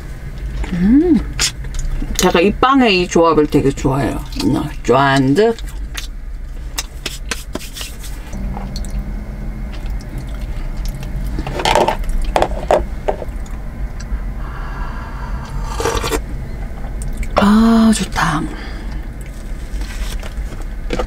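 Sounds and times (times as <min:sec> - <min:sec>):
low hum: 0:00.0 - 0:21.0
person sipping: 0:14.0 - 0:16.3.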